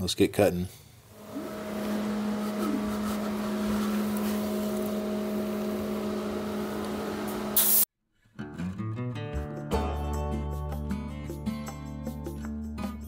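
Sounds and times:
air hissing: 1.1s - 7.9s
plasma cutter humming: 1.2s - 7.9s.

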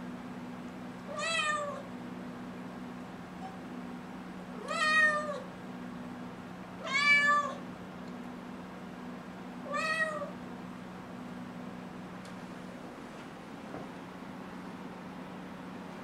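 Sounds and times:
steady low hum: 0.0s - 16.0s
kitten meowing: 1.1s - 1.9s, 4.6s - 5.5s, 6.8s - 7.6s, 9.7s - 10.4s.

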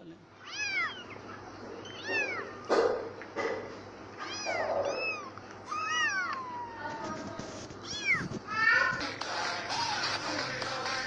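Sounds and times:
kittens mewing: 0.4s - 3.1s, 4.2s - 7.2s, 7.8s - 9.0s
kittens scuffling: 0.9s - 9.2s.

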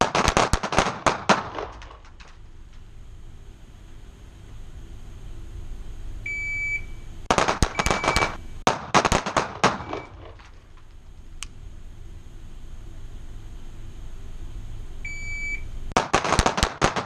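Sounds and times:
electronic start beep: 6.3s - 7.0s, 15.1s - 15.7s
pistol shots ringing indoors: 7.3s - 10.1s.

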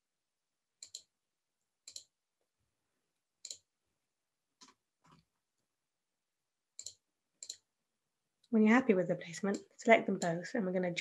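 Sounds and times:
computer mouse clicks: 0.8s - 1.1s, 1.8s - 2.1s, 3.4s - 3.7s, 6.8s - 7.7s, 9.4s - 10.5s.

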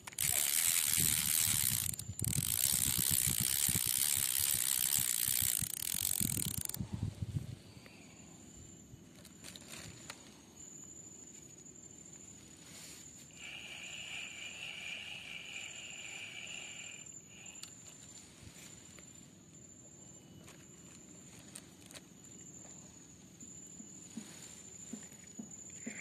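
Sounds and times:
fishing reel cranking: 0.0s - 6.8s, 13.3s - 17.7s.

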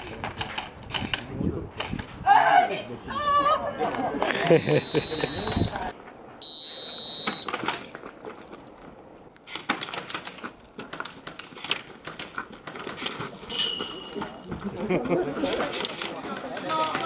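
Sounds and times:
high electronic beep: 4.5s - 5.7s, 6.4s - 7.5s.

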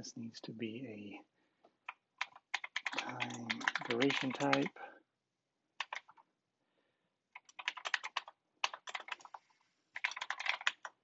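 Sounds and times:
typing on computer keyboard: 1.8s - 4.7s, 5.8s - 6.2s, 7.3s - 11.0s.

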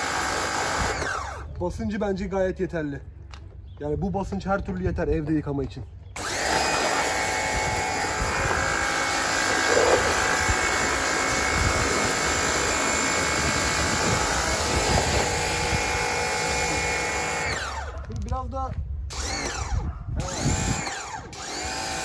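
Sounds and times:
electric pressure washer running: 0.0s - 1.5s, 6.2s - 17.9s, 19.1s - 22.0s.

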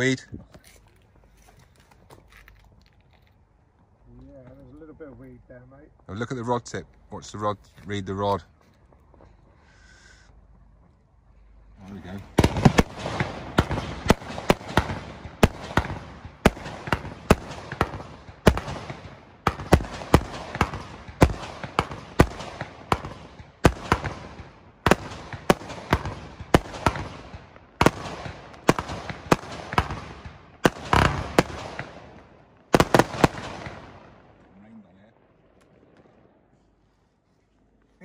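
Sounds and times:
fireworks bangs: 12.0s - 36.6s.

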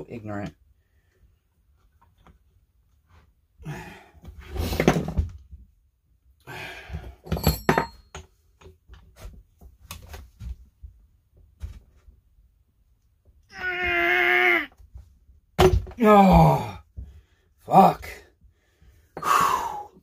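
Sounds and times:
metal tools rattling and thudding: 7.0s - 8.4s.

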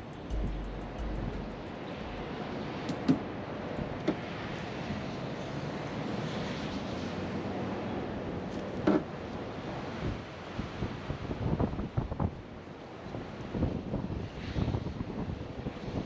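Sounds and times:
outdoor background noise: 0.0s - 16.0s.

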